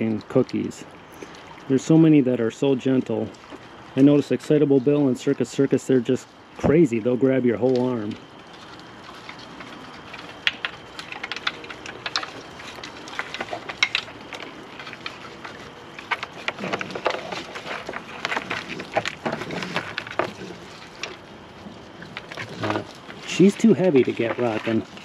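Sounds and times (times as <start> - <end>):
animals crunching food: 0.0 - 25.0
claws scraping cardboard: 14.9 - 21.0.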